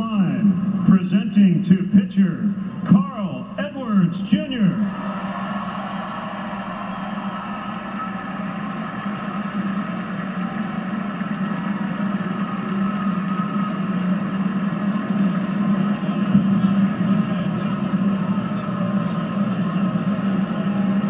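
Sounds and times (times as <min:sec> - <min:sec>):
stadium crowd cheering: 0:04.4 - 0:21.0.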